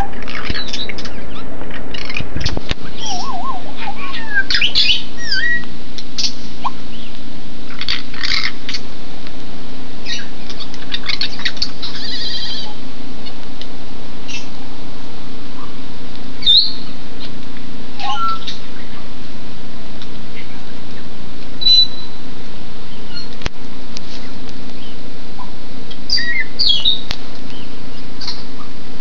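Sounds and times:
parrots whistling and squawking: 0:00.0 - 0:07.1, 0:07.7 - 0:08.8, 0:10.0 - 0:12.8, 0:16.4 - 0:17.3, 0:18.0 - 0:19.0, 0:21.6 - 0:22.2, 0:26.1 - 0:27.6.

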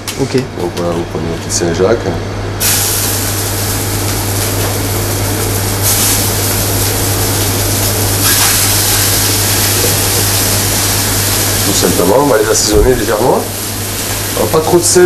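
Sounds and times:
scallops sizzling in frying pan: 0:02.6 - 0:15.0.

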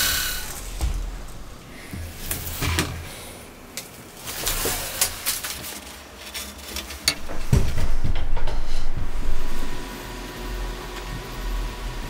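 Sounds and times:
low thump: 0:07.2 - 0:09.8.

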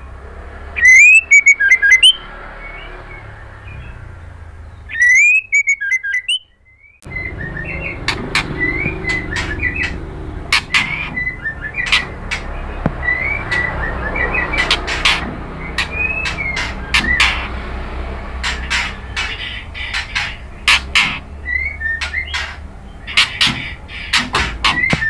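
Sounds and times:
bird singing whistles: 0:00.8 - 0:04.0, 0:04.7 - 0:10.0, 0:13.0 - 0:14.9
sharp bird clicks: 0:04.8 - 0:17.6, 0:18.4 - 0:25.0.

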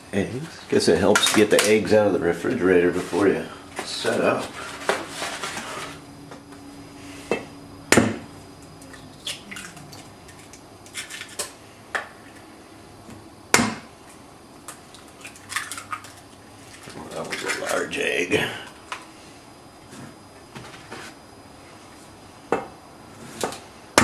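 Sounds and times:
eggs cracking on a metal bowl: 0:14.6 - 0:17.9.

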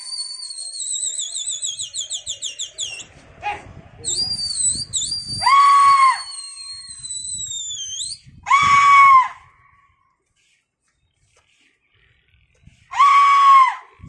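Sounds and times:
long high whistle sliding down: 0:00.0 - 0:03.1, 0:04.1 - 0:09.3
person crying out shrilly: 0:08.5 - 0:09.3.

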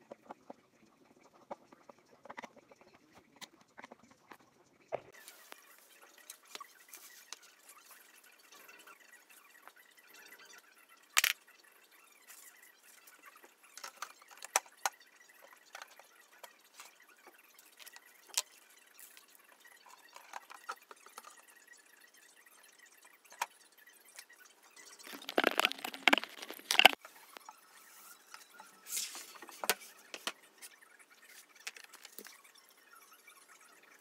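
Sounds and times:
packaging rustling and knocking: 0:25.1 - 0:27.0.

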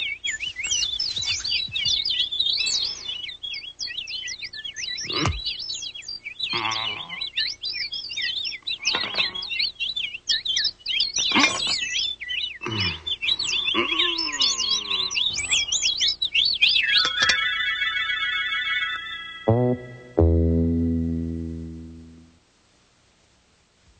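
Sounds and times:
high twittering cartoon chirps: 0:00.0 - 0:22.3
short pitched sound effects: 0:19.5 - 0:22.4.

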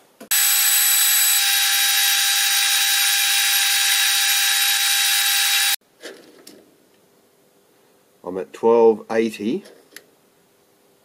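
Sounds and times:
metal lathe cutting with high whine: 0:00.3 - 0:05.8.

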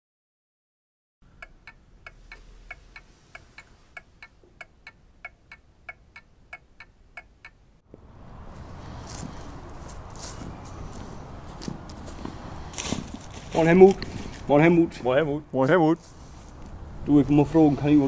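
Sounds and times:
even ticking: 0:01.2 - 0:07.8
low steady background hiss: 0:01.2 - 0:07.8.

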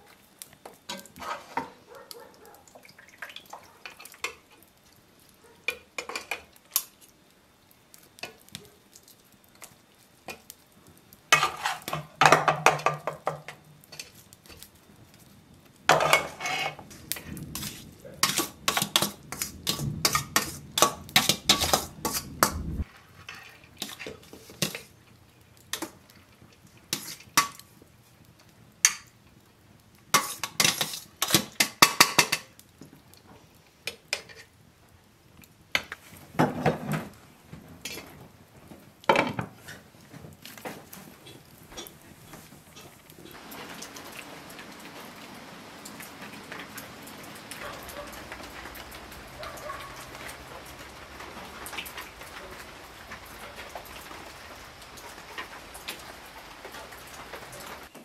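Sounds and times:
metal spoons scraping pots: 0:11.3 - 0:12.6, 0:15.9 - 0:16.8, 0:17.6 - 0:22.6, 0:30.2 - 0:32.4.

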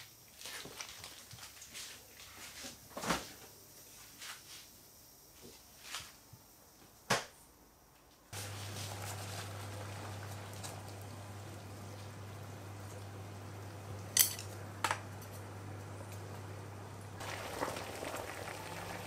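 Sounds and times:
induction hob humming: 0:08.4 - 0:19.0.

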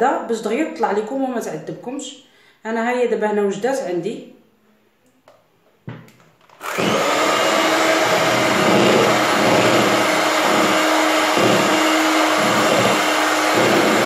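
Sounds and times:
electric hand mixer running: 0:06.6 - 0:14.0.

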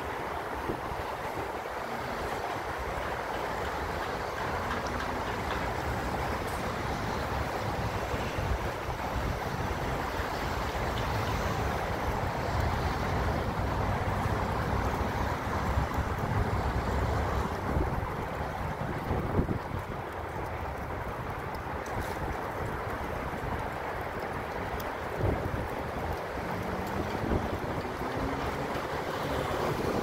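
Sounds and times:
wind buffeting microphone: 0:00.0 - 0:30.0
wind rushing in snowstorm: 0:21.8 - 0:30.0.

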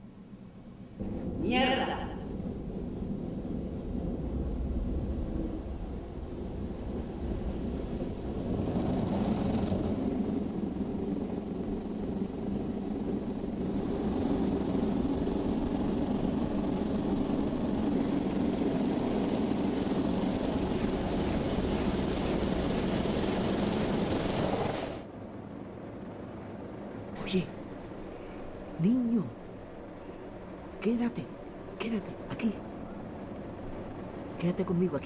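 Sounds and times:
low hum: 0:00.0 - 0:35.0.

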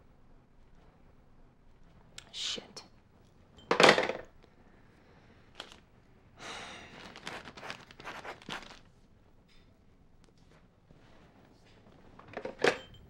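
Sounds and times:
newspaper pages rustling: 0:05.5 - 0:05.8, 0:06.8 - 0:09.0.

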